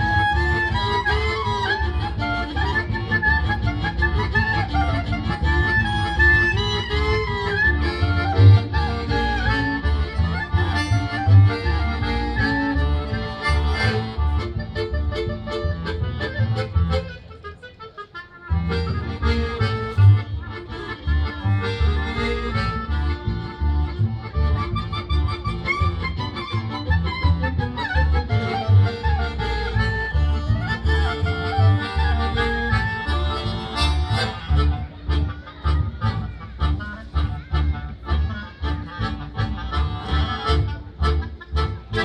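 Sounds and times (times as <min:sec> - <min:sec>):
live folk band playing: 0:00.0 - 0:42.0.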